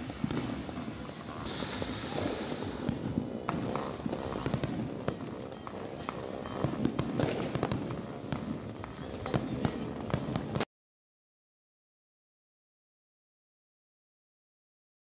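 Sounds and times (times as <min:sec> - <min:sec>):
fireworks bangs and crackles: 0:00.0 - 0:10.7.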